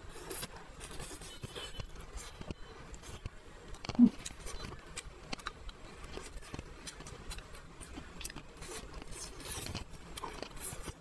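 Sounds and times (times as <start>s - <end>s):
chewing food: 0.1s - 11.0s.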